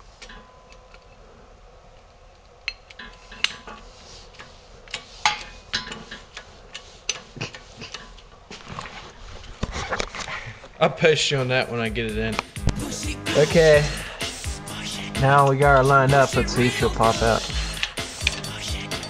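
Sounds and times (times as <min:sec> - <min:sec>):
metallic clicks of tools: 0:17.7 - 0:19.0.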